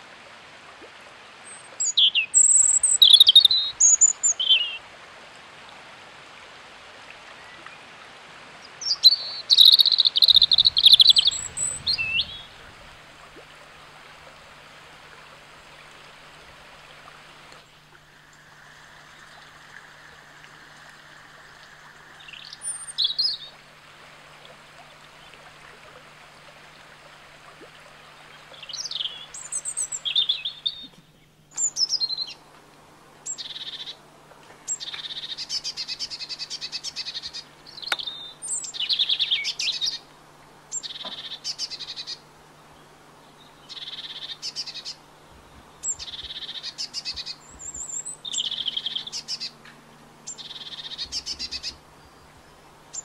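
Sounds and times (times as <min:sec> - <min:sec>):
stream rushing: 0:00.0 - 0:30.6, 0:44.0 - 0:53.0
songbirds chirping: 0:08.6 - 0:23.7, 0:27.7 - 0:32.6, 0:33.2 - 0:53.0.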